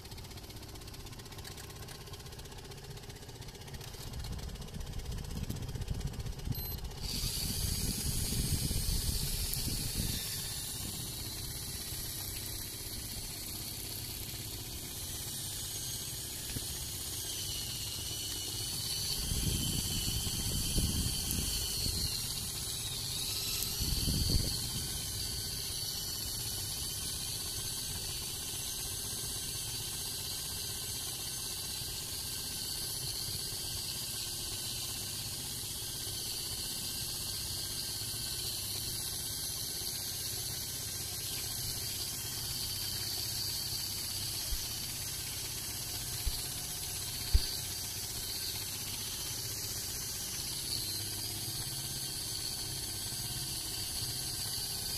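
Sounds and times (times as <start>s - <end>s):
electric fishing reel whine: 0.0s - 54.9s
wind buffeting microphone: 7.1s - 11.2s, 19.2s - 22.2s, 23.6s - 24.9s.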